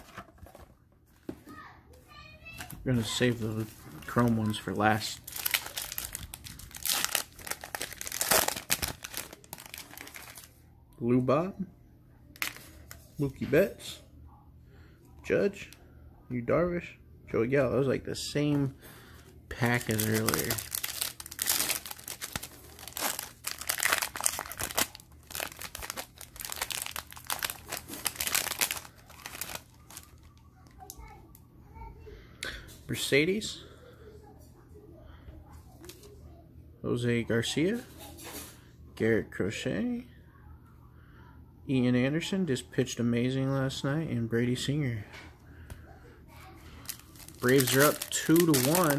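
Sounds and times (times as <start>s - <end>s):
plastic wrapper torn and crinkled: 3.1s - 10.6s, 12.4s - 13.0s, 19.5s - 31.0s, 46.8s - 48.9s.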